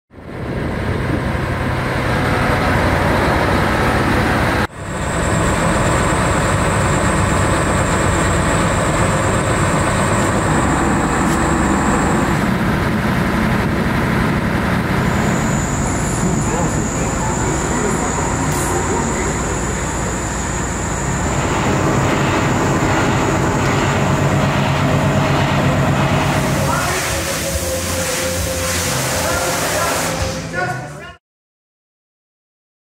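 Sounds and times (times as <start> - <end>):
diesel engine running: 0.1 - 30.9
thin high whine: 5.0 - 31.1.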